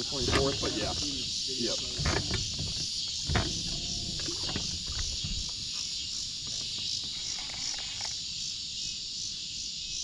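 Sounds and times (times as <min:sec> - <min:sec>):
high-pitched insect chorus: 0:00.0 - 0:10.0
faint low knocks: 0:00.1 - 0:05.8.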